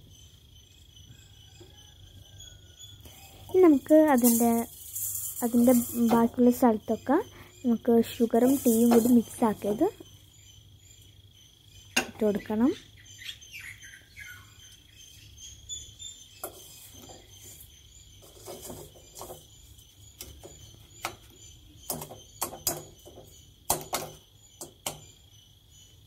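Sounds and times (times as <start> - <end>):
metal spoon scraping steel vessel: 4.0 - 6.4.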